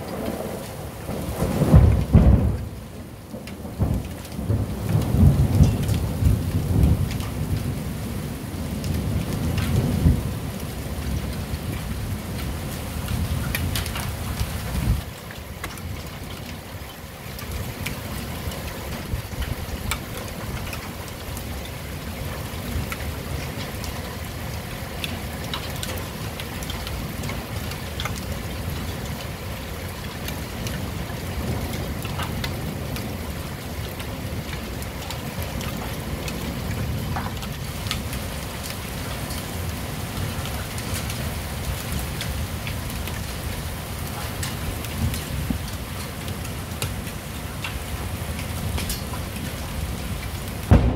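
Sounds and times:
heavy rain: 0.0s - 50.9s
raindrops ticking on surfaces: 0.0s - 50.9s
thunder rumble: 49.4s - 50.9s.

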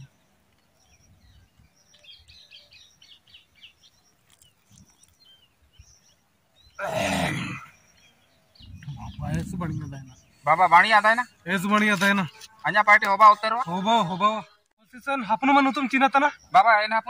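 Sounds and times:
faint bird chirps: 0.0s - 12.8s
outdoor background noise: 0.0s - 17.0s.

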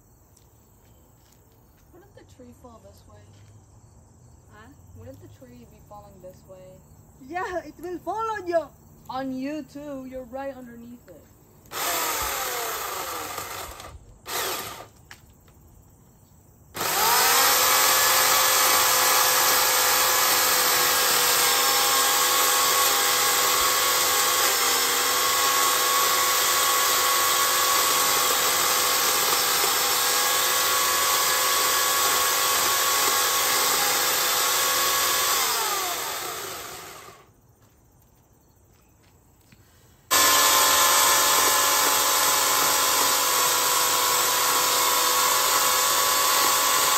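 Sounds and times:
electric chainsaw cutting wood: 11.7s - 15.0s, 16.7s - 37.3s, 40.1s - 46.9s.

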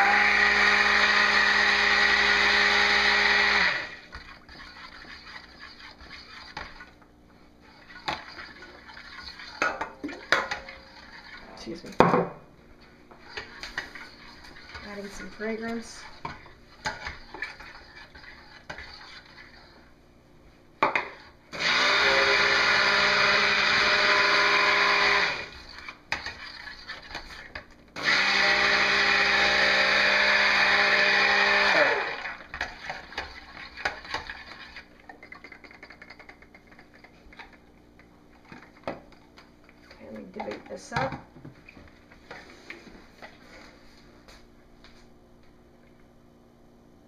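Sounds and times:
stick blender motor whirring: 0.0s - 7.0s, 21.5s - 27.2s, 28.0s - 34.9s.

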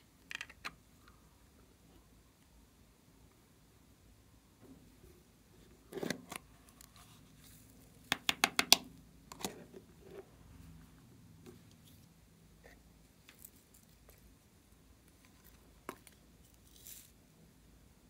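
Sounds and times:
plastic container clicks and taps: 8.1s - 8.8s.

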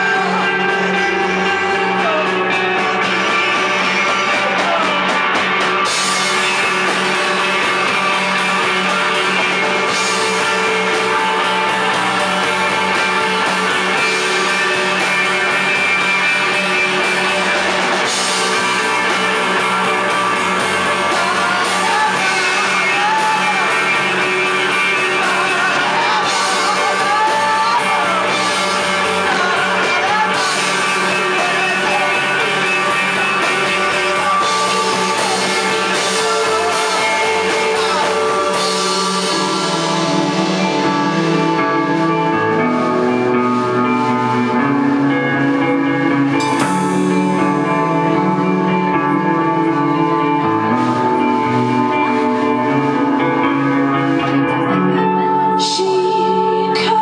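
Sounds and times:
bass guitar: 0.0s - 57.0s
drum kit: 0.0s - 57.0s
electric guitar: 0.0s - 57.0s
woman singing: 21.0s - 38.6s, 54.9s - 57.0s.

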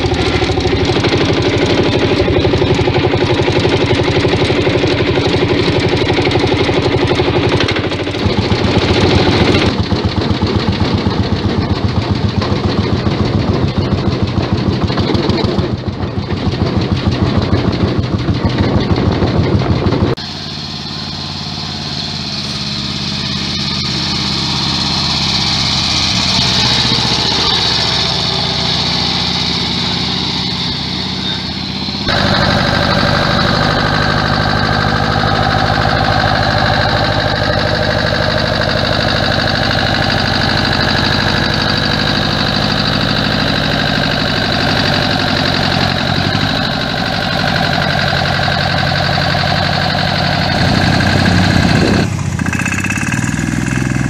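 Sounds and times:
tractor engine chugging: 0.0s - 54.0s.

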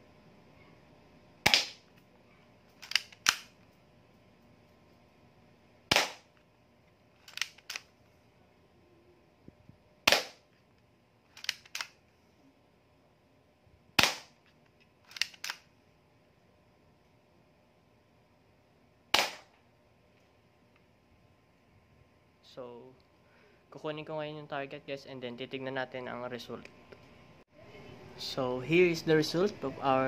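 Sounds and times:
airsoft pistol shots: 1.4s - 1.8s, 5.9s - 6.3s, 10.0s - 10.4s, 14.0s - 14.4s, 19.1s - 19.5s
pistol slide clicks: 2.8s - 3.6s, 7.2s - 7.9s, 11.4s - 12.0s, 15.1s - 15.6s.

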